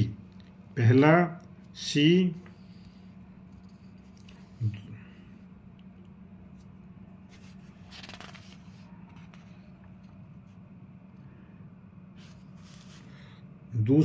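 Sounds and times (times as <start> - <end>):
low steady hum: 0.0 - 14.0
paper pages turning: 6.5 - 10.5, 12.2 - 13.3.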